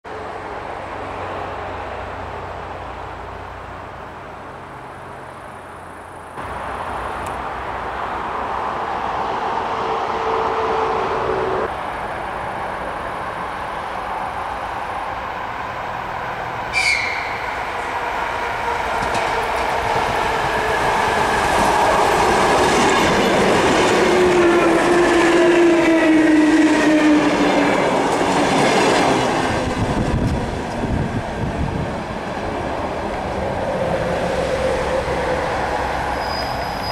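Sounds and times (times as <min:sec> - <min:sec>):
sharp high squeal: 0:16.7 - 0:18.0, 0:36.0 - 0:36.9
train whine falling in pitch: 0:16.7 - 0:27.9
train wheels clattering over rail joints: 0:18.8 - 0:25.8.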